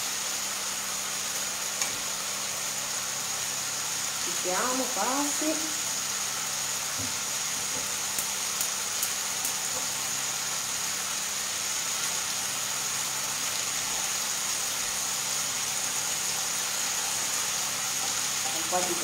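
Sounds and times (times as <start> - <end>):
fish frying in a pan: 0.0 - 19.0
gas hob hum: 0.0 - 19.0.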